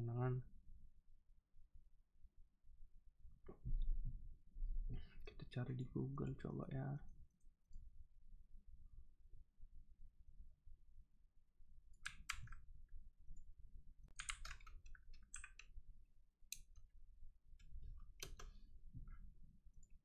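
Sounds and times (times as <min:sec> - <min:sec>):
computer keyboard keystrokes: 0:12.0 - 0:12.6, 0:14.1 - 0:15.7, 0:18.2 - 0:18.5
mouse clicks: 0:12.0 - 0:12.6, 0:14.1 - 0:15.7, 0:16.5 - 0:16.8, 0:17.6 - 0:18.6.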